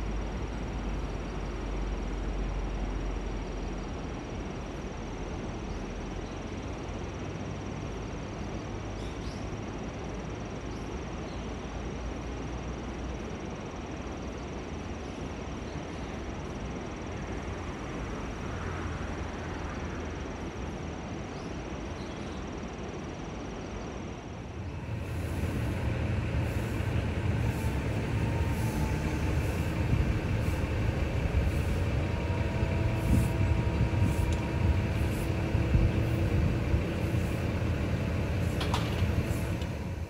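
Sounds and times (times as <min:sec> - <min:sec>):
diesel engine rumbling: 0:24.4 - 0:40.0
steady rushing noise: 0:24.4 - 0:40.0.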